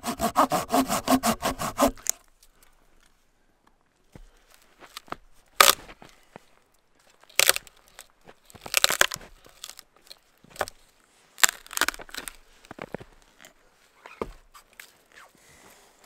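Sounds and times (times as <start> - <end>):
dead branches cracking and snapping: 7.3 - 10.8, 11.4 - 12.4.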